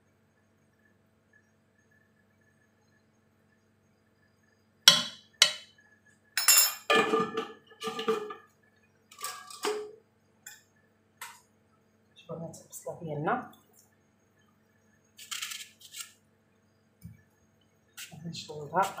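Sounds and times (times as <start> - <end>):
metal spoon clinking on pot: 4.9 - 5.6, 6.4 - 7.2.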